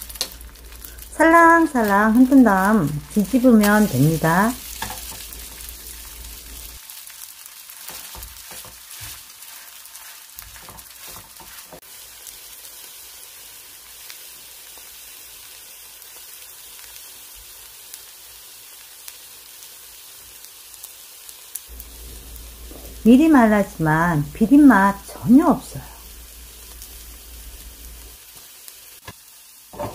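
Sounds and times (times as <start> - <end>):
batter sizzling in hot oil: 0.0 - 29.9
spatula knocking and scraping pan: 4.8 - 5.6, 7.8 - 9.2, 9.9 - 11.8.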